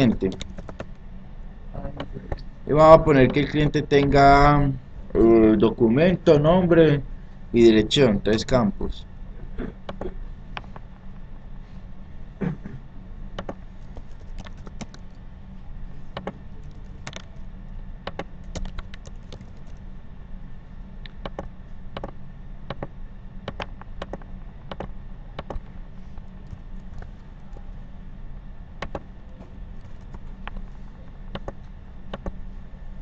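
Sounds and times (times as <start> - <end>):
computer keyboard typing: 0.0 - 0.9, 13.4 - 15.1, 16.2 - 17.3, 18.1 - 19.8, 21.2 - 22.1, 23.5 - 25.6, 28.8 - 30.6, 31.3 - 32.4
steady low hum: 0.0 - 33.0.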